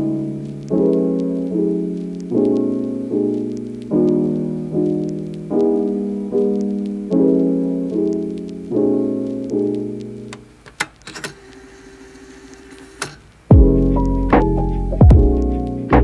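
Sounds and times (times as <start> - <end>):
soft piano chords: 0.0 - 10.4, 13.5 - 16.0
sharp clicks: 9.5 - 11.6.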